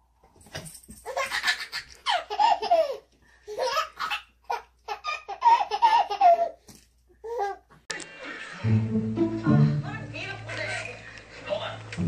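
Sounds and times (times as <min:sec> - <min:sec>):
baby belly-laughing: 0:01.0 - 0:06.6.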